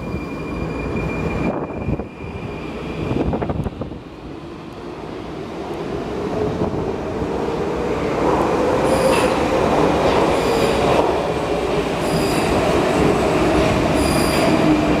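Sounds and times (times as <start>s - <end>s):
metro train rumble and motor whine: 0.0s - 15.0s
high-pitched wheel squeals: 12.0s - 12.6s, 14.0s - 14.6s.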